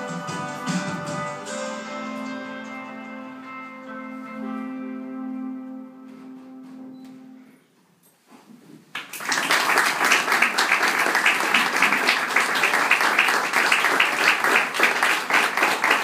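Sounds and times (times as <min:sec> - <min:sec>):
audience applauding: 0:08.9 - 0:16.0.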